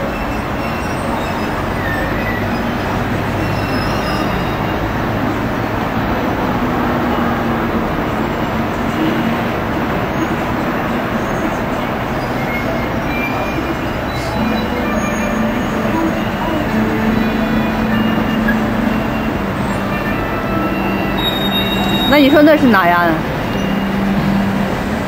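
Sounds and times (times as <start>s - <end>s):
city traffic noise: 0.0s - 25.0s.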